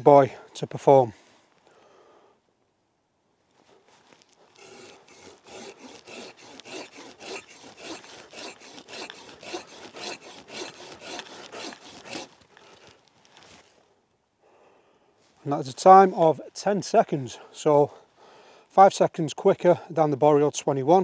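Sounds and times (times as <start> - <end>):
pruning saw rasping through log: 3.9 - 13.5.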